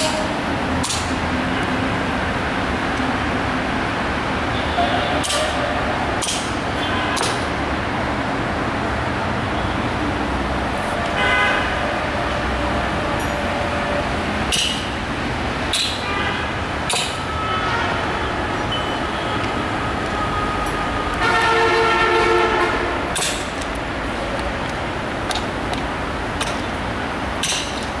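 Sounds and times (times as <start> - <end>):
train running noise: 0.0 - 28.0
locomotive horn blast: 11.1 - 14.2, 17.3 - 23.2.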